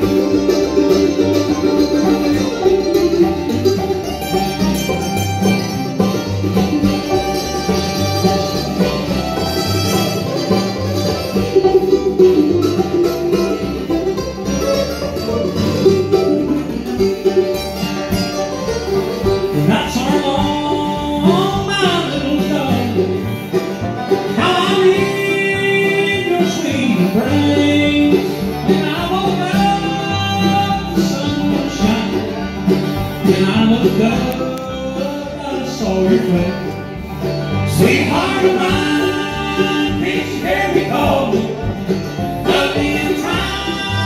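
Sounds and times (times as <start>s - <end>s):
acoustic guitar: 0.0s - 44.0s
banjo: 0.0s - 44.0s
mandolin: 0.0s - 44.0s
upright bass: 0.0s - 44.0s
person singing: 19.5s - 23.2s, 24.3s - 32.4s, 33.2s - 36.7s, 37.7s - 44.0s.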